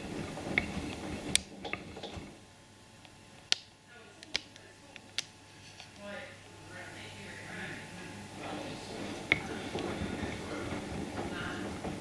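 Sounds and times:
washing machine tumbling: 0:00.0 - 0:02.6, 0:07.4 - 0:12.0.

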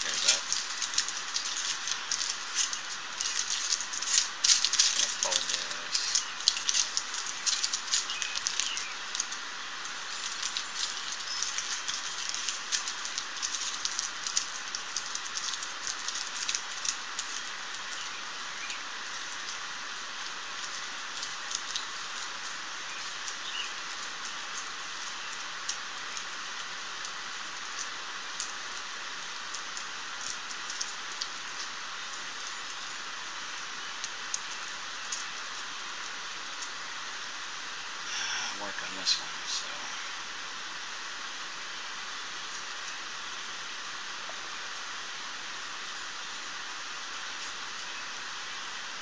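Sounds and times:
aluminium foil crinkling: 0:00.0 - 0:38.3
steady hiss: 0:00.0 - 0:49.0.

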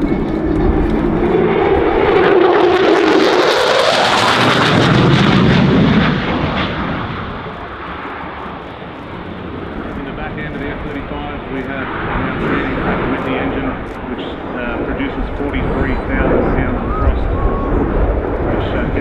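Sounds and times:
rising engine whine: 0:00.0 - 0:11.6
jet engine roaring overhead: 0:00.0 - 0:19.0.

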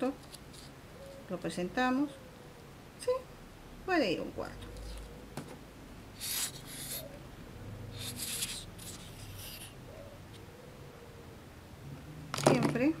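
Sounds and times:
paper rustling and scraping: 0:00.2 - 0:00.7, 0:08.0 - 0:09.7.

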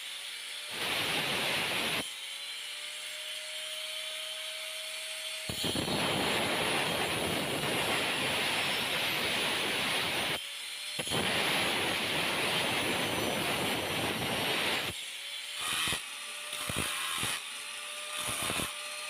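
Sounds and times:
grinder motor running free: 0:12.6 - 0:19.0
angle grinder cutting coconut shell: 0:14.3 - 0:19.0.

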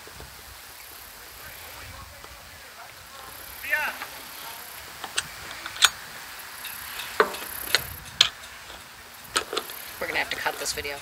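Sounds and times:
metal tool clicking on screws: 0:05.0 - 0:06.0, 0:06.6 - 0:11.0.

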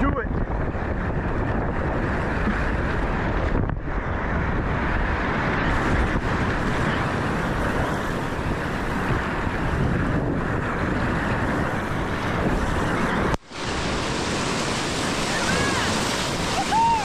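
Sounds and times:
wind buffeting microphone: 0:00.0 - 0:17.0
whitewater rapids rushing: 0:10.6 - 0:17.0.

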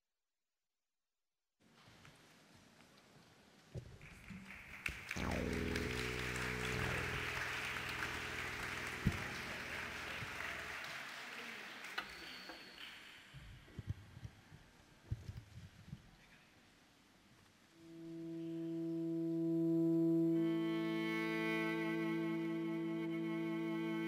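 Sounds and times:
audience applause: 0:04.0 - 0:13.3
low sustained musical chord: 0:05.2 - 0:11.2, 0:17.8 - 0:24.0.

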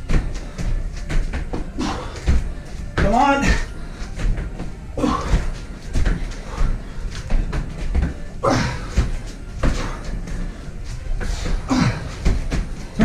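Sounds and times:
thuds on rubber gym mat: 0:00.0 - 0:10.4.

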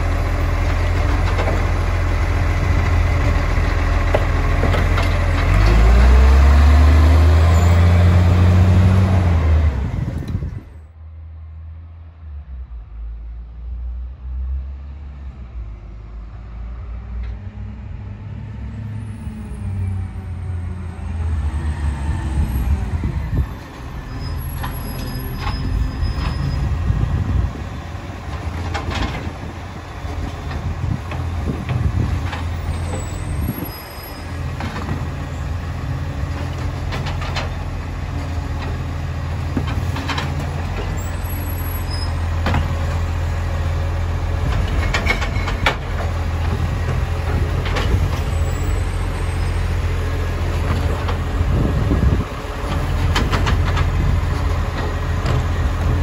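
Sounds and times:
diesel truck engine running: 0:00.0 - 0:10.8, 0:19.1 - 0:56.0
sharp clanks and knocks: 0:28.3 - 0:29.5, 0:39.5 - 0:41.0, 0:42.4 - 0:42.9, 0:44.5 - 0:48.3, 0:52.7 - 0:55.6.

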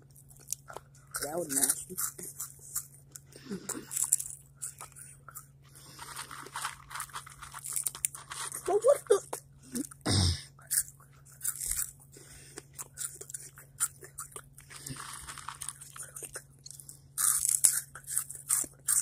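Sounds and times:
crunching tortilla chips: 0:00.1 - 0:09.1, 0:10.6 - 0:19.0.

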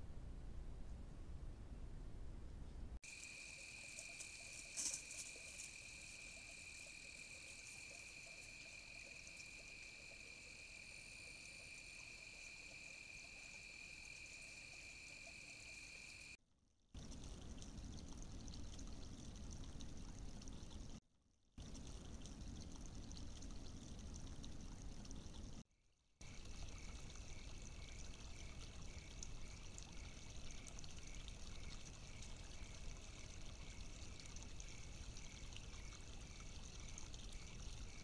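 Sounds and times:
night insect chorus: 0:03.0 - 0:16.4, 0:26.2 - 0:38.0.

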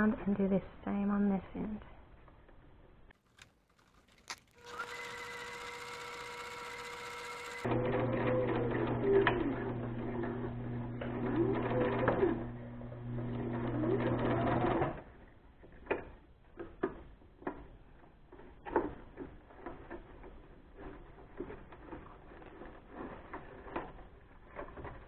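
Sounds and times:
sewing machine humming: 0:04.5 - 0:15.0.

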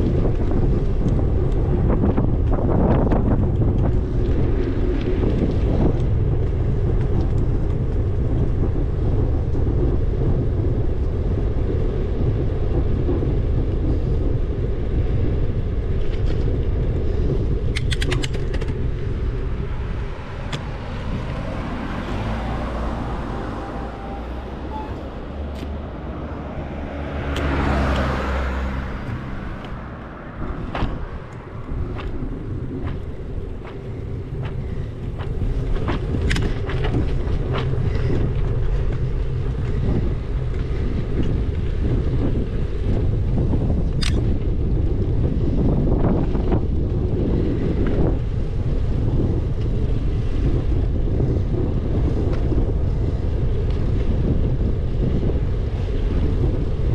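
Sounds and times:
wind buffeting microphone: 0:00.0 - 0:56.9
sharp clicks: 0:17.7 - 0:18.8
vehicle passing by: 0:18.8 - 0:43.2.

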